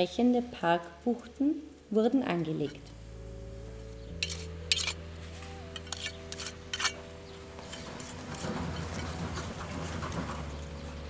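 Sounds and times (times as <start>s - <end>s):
trowel scraping on stone: 4.1s - 5.0s, 5.7s - 9.5s
trowel clinking on stone: 4.2s - 5.0s, 5.8s - 7.0s.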